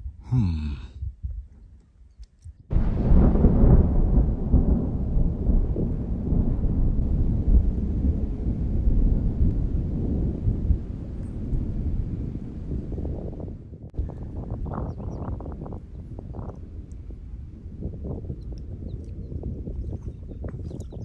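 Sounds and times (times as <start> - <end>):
thunder rumbling: 2.7 - 19.8.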